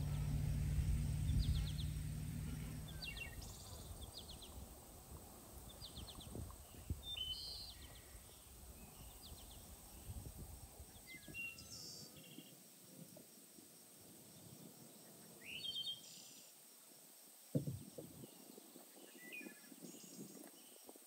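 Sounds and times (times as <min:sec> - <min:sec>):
small birds chirping: 0:00.0 - 0:04.8, 0:05.6 - 0:12.6
low steady hum: 0:00.0 - 0:05.3
faint knocks: 0:17.5 - 0:18.2.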